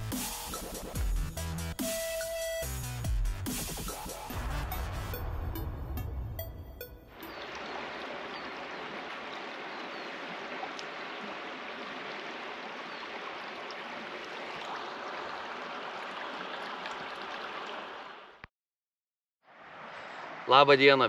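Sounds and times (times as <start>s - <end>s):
river water rushing over stones: 7.2s - 18.2s.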